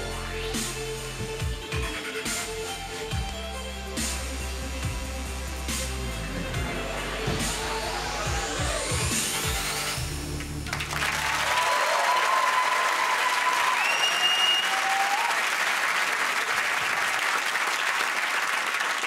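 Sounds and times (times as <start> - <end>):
music with heavy bass line: 0.0 - 11.1
audience applauding and cheering: 6.2 - 19.0
short whistles: 13.7 - 14.9.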